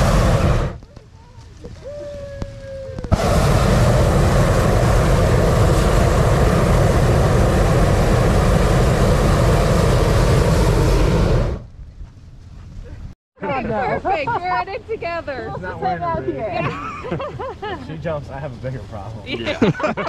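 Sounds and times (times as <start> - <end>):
propane burner blast: 0.0 - 0.8, 1.9 - 11.7.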